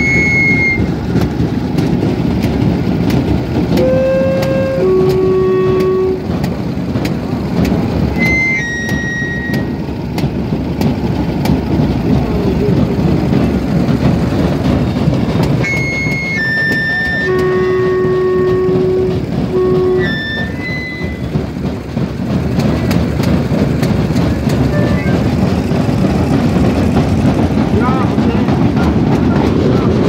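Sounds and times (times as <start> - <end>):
high whistle blasts: 0.0 - 0.9, 3.8 - 6.2, 8.2 - 9.8, 15.6 - 21.4
steady horn-like tone: 3.7 - 6.3, 15.6 - 21.3.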